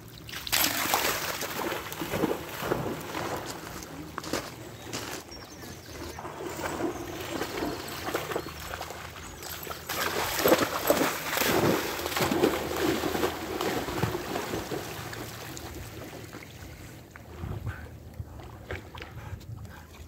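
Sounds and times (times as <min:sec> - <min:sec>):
dog splashing through water: 0:00.2 - 0:04.5, 0:05.8 - 0:16.3.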